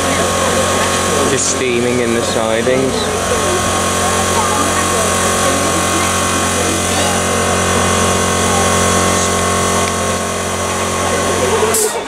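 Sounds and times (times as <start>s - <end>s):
steady hum: 0.0s - 12.0s
steam escaping: 0.0s - 12.0s.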